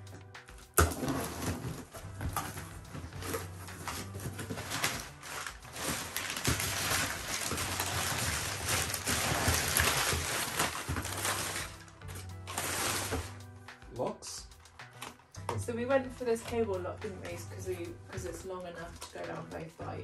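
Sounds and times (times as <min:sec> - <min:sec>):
packing paper rustling: 0:00.8 - 0:13.4.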